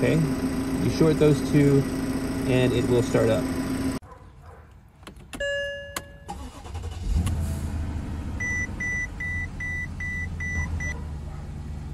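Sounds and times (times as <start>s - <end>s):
car engine starting and idling: 0.0s - 4.0s, 5.0s - 11.9s
dashboard warning chime beeping: 5.3s - 6.9s, 8.4s - 11.0s.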